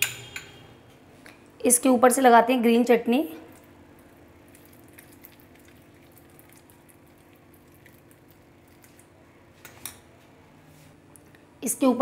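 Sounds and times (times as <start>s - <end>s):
faint steady hum: 0.0s - 12.0s
spoon spreading wet chutney: 3.5s - 9.0s.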